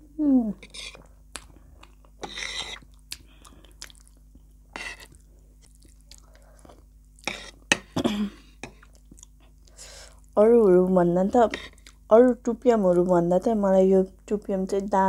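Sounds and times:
cutlery scraping a ceramic plate: 0.6 - 1.0, 2.2 - 2.8, 4.8 - 5.1, 7.3 - 7.9
chewing noodles: 0.7 - 7.3.

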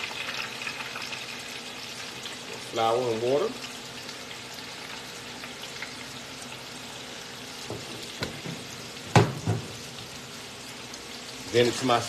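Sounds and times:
oil sizzling in a deep fryer: 0.0 - 12.0.

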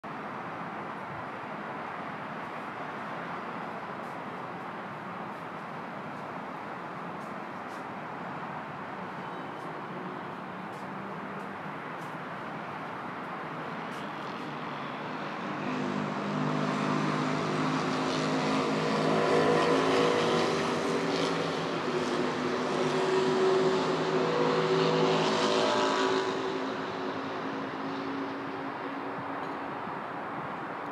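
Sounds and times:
road traffic hum: 0.0 - 30.9.

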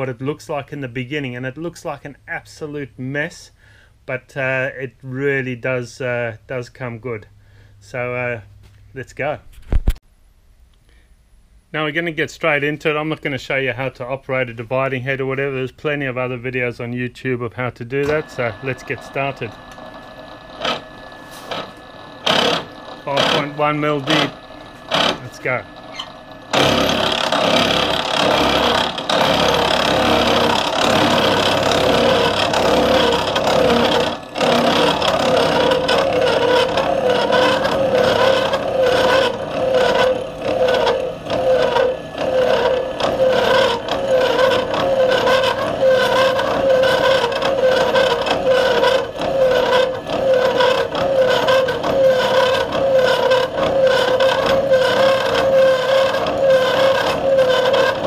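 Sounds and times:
milling machine cutting steel: 17.9 - 58.0
steady ringing tone: 18.1 - 58.0.

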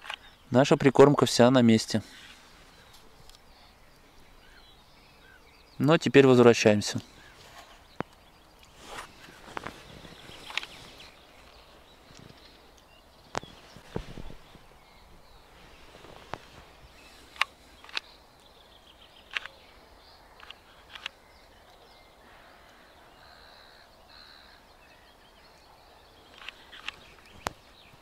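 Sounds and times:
faint birdsong: 0.0 - 28.0.

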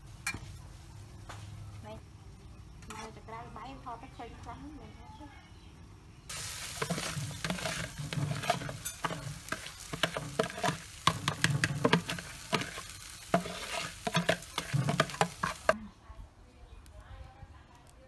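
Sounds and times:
metal spatula scraping a wok: 2.8 - 3.2, 6.4 - 15.8
food sizzling: 6.3 - 15.8.

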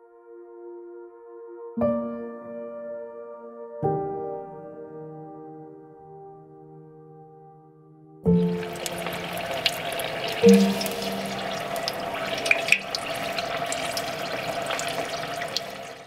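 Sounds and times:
soft sustained music notes: 8.3 - 15.9
food frying in hot oil: 8.3 - 16.0.

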